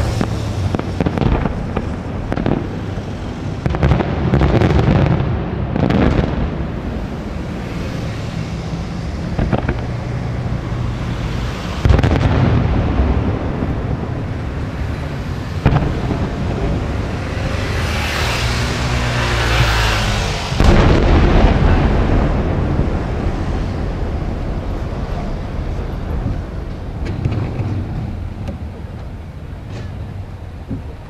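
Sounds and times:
hissing crackle: 0.0 - 5.1
firework bangs: 0.0 - 30.9
low rumble: 5.1 - 30.9.

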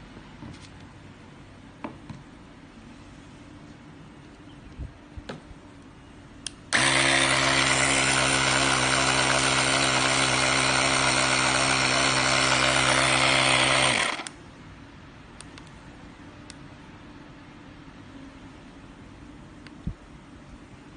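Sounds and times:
tyre inflator compressor humming: 6.7 - 14.4.

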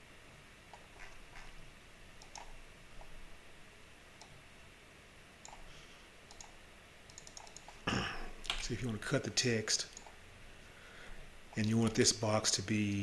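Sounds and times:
computer mouse clicks: 0.7 - 1.6, 2.2 - 3.2, 4.2 - 4.4, 5.4 - 5.7, 6.3 - 7.8, 9.9 - 10.2.

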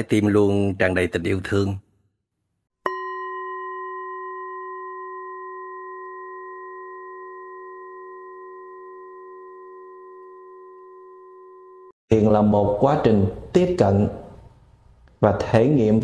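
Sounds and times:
singing bowl ringing: 2.9 - 12.0.

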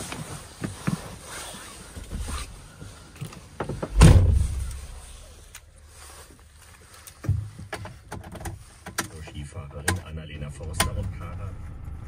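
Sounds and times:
handling rustles: 0.0 - 9.2
van door shutting: 3.8 - 5.0.

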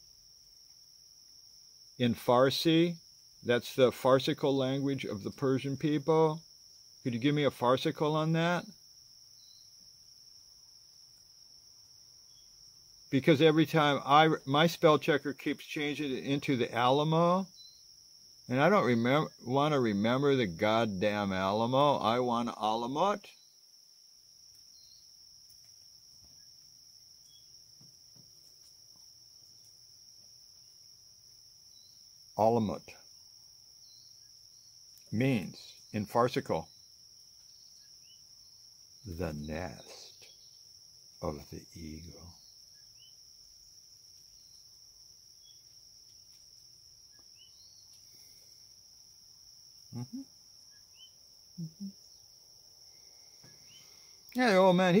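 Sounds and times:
insects droning: 0.0 - 55.0
man humming: 49.9 - 50.3, 51.6 - 52.0.

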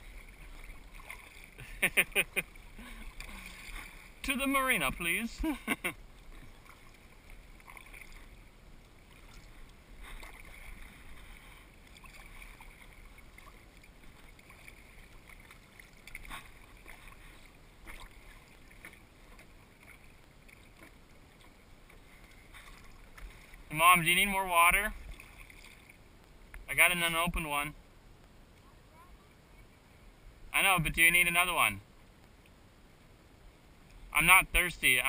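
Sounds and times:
short sharp splashes: 0.0 - 2.0
paddle strokes: 0.0 - 27.5.

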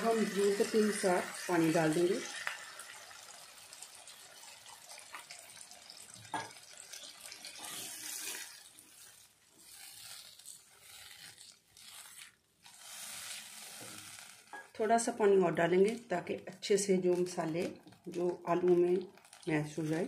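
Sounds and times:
water pouring into curry: 0.0 - 9.4.

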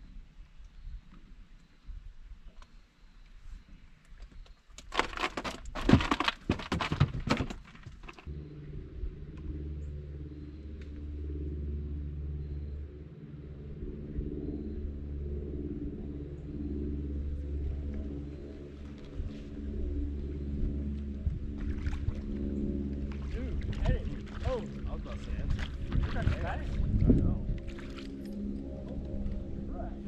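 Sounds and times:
low motor hum: 8.0 - 30.0.

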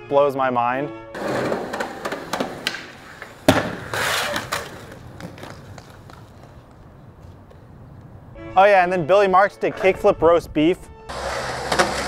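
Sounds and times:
skateboard landing slap: 1.2 - 6.3, 11.6 - 12.0
skateboard wheels rolling on concrete: 1.2 - 8.4, 11.1 - 12.0.

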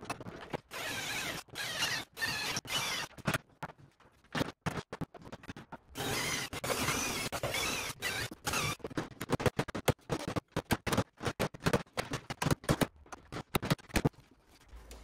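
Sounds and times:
electric drill boring metal: 0.7 - 3.1.

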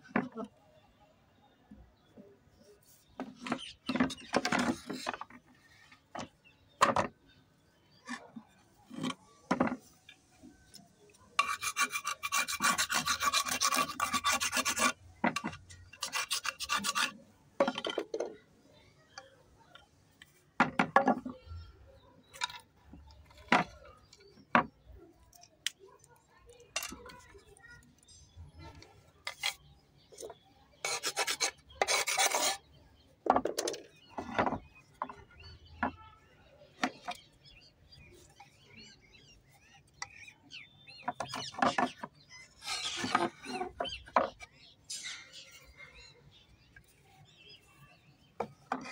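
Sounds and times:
knife scraping stone slab: 11.4 - 17.2, 30.8 - 32.7.

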